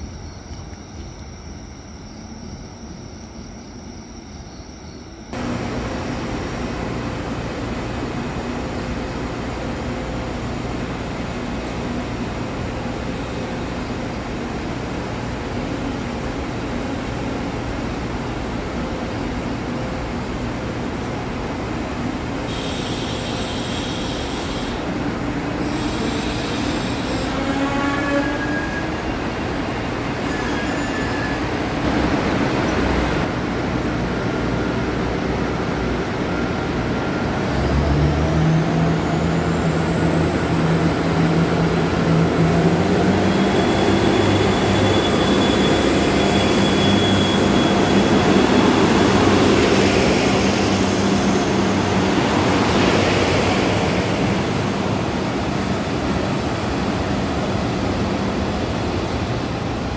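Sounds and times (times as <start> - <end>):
diesel railcar engines throttling up: 5.2 - 27.4, 31.4 - 59.9
train brakes and wheels squealing: 22.4 - 33.2, 37.1 - 59.3.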